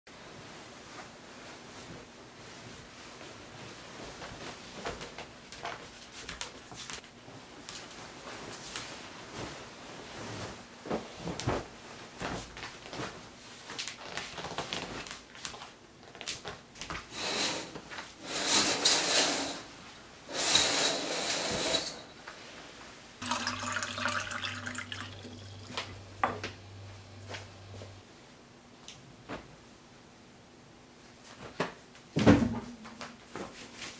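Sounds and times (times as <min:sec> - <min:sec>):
bedding rustling: 0:00.1 - 0:24.8, 0:25.4 - 0:28.3, 0:31.0 - 0:33.9
low hum with hiss: 0:00.1 - 0:33.9
curtains swishing along rail: 0:17.1 - 0:23.4.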